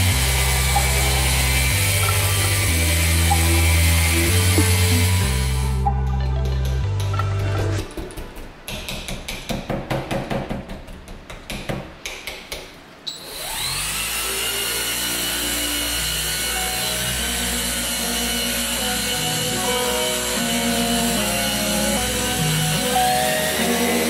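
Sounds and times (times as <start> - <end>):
machine polisher whining: 0.0 - 5.8, 13.1 - 24.0.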